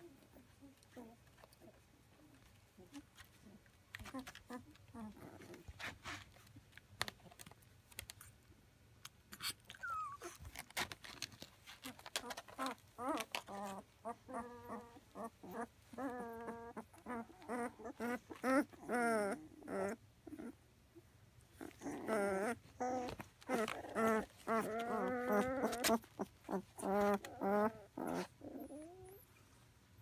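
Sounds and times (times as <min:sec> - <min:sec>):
puppies whimpering: 0:09.7 - 0:10.4, 0:12.2 - 0:20.5, 0:21.7 - 0:29.2.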